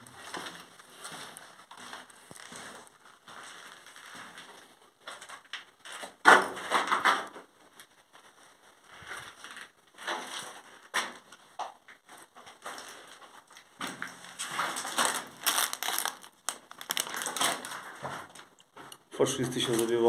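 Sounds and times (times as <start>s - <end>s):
footsteps crunching on grit: 0.1s - 4.7s.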